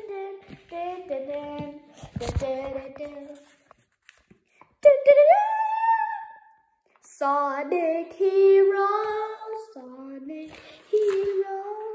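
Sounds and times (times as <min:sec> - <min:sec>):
child singing wordless notes: 0:00.0 - 0:03.5, 0:04.8 - 0:06.4, 0:07.0 - 0:11.9.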